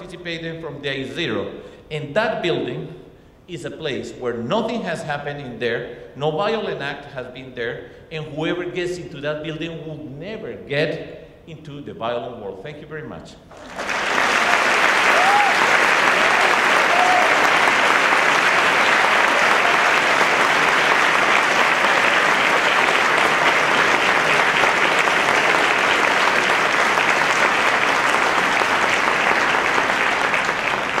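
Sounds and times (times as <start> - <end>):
audience applauding: 13.5 - 31.0.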